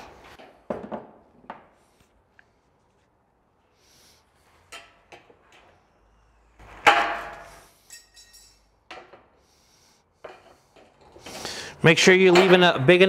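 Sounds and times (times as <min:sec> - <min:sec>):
metal piece clattering: 0:07.0 - 0:08.7
high metallic ringing: 0:07.2 - 0:08.8.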